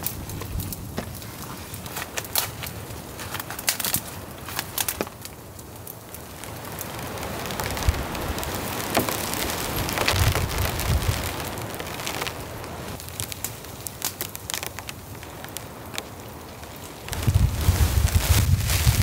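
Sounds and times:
rushing storm noise: 0:00.0 - 0:13.0, 0:15.1 - 0:19.0
campfire crackling: 0:00.0 - 0:19.0
sticks snapping: 0:01.8 - 0:05.4, 0:13.0 - 0:17.3.

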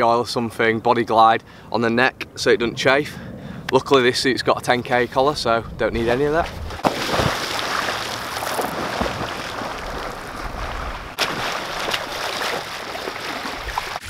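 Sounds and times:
water splashing and churning: 0:06.2 - 0:14.0.

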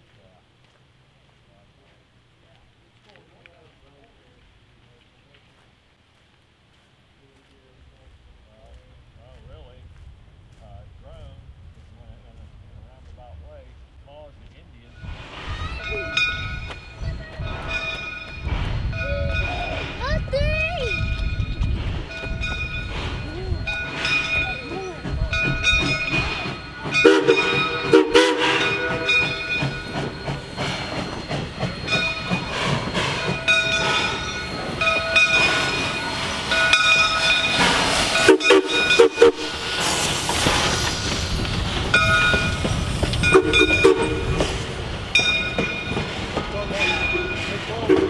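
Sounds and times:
locomotive bell ringing: 0:14.9 - 0:40.1, 0:40.7 - 0:48.0
steam hissing: 0:14.9 - 0:48.0
steam whistle blasts: 0:27.0 - 0:29.2, 0:38.1 - 0:39.7, 0:43.2 - 0:44.4.

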